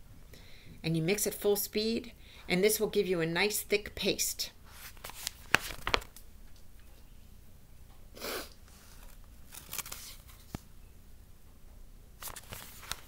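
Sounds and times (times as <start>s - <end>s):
book pages rustling: 4.7s - 6.2s, 8.7s - 10.7s, 12.2s - 13.0s.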